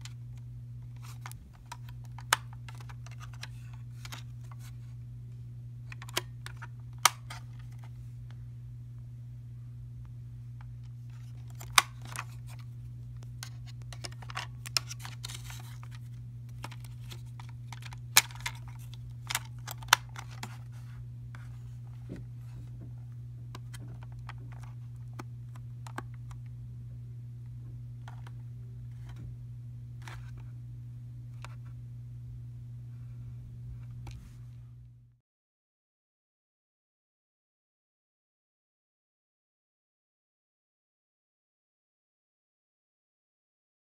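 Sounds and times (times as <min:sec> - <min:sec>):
steady low hum: 0:00.0 - 0:35.2
plastic radio handling clicks: 0:00.8 - 0:04.8, 0:05.9 - 0:07.9, 0:10.8 - 0:22.0, 0:23.5 - 0:26.5, 0:28.0 - 0:29.2, 0:30.0 - 0:30.4.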